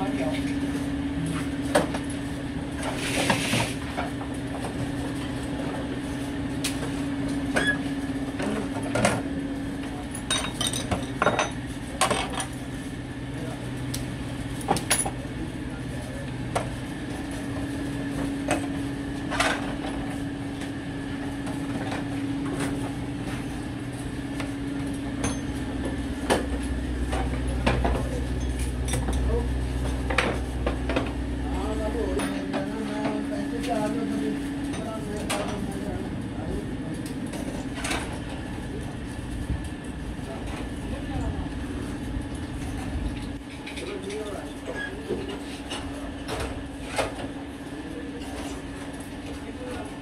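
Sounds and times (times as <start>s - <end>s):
machine hum: 15.3s - 44.4s.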